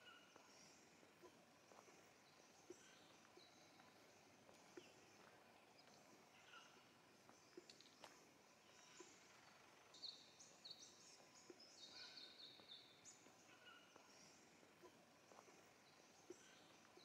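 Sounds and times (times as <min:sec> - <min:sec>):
faint birds chirping: 0:00.0 - 0:17.0.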